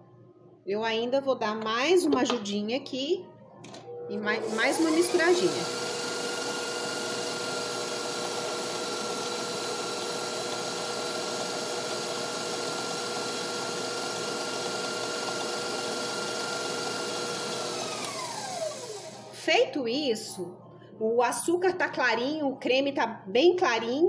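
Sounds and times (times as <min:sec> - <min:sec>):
stand mixer motor whine: 0:04.3 - 0:19.4.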